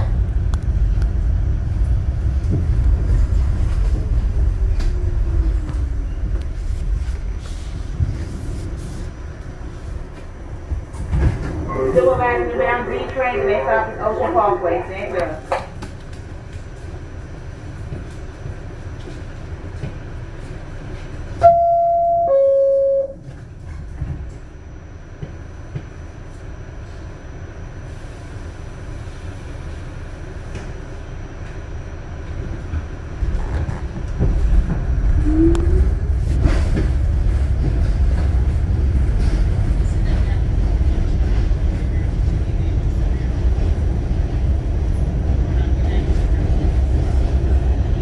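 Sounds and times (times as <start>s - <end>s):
train wheels and motors rumbling: 0.0s - 48.0s
two-note door-closing chime: 21.4s - 23.2s.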